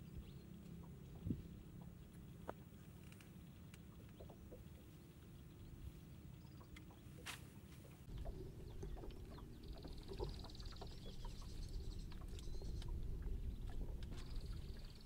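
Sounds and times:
steady low rumble: 8.0 - 15.0.

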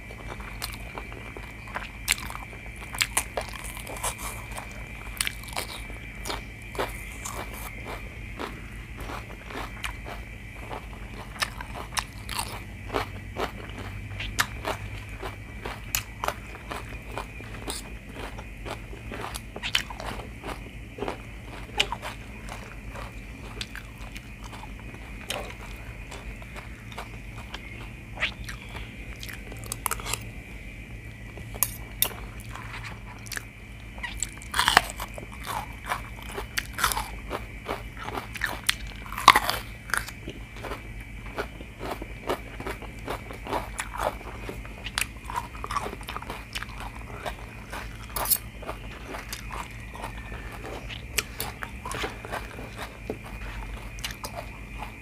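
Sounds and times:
chewing and crunching food: 0.0 - 55.0.

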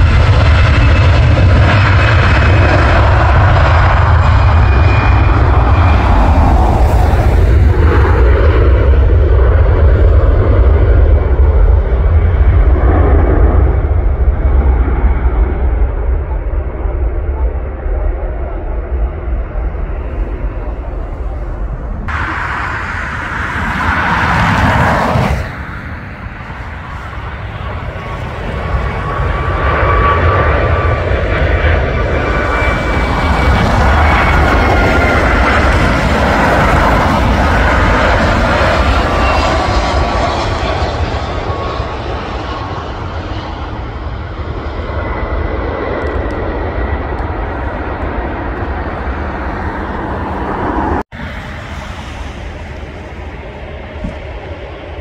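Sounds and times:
rushing noise: 0.0 - 9.9, 19.8 - 40.8
high engine whine: 0.0 - 55.0
jet engines rumbling: 0.0 - 55.0.

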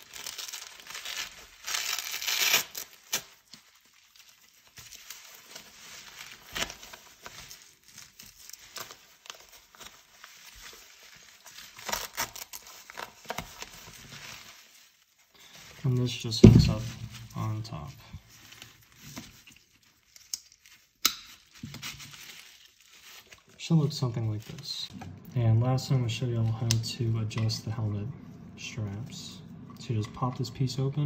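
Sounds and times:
velcro pulling and tearing: 0.0 - 15.2, 18.6 - 23.5
bubble wrap rustling: 0.0 - 30.4.

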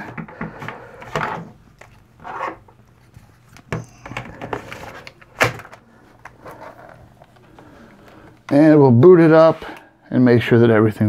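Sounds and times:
plastic scraping and knocking: 0.0 - 8.6.

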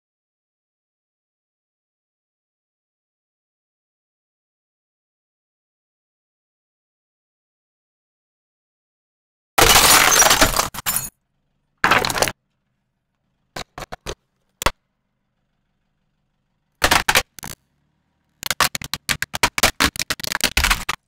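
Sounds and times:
small clicks: 16.7 - 21.0
plastic shell breaking in sharp cracks: 16.8 - 17.6, 18.4 - 21.0
plastic casing cracking and crunching: 18.4 - 21.0.

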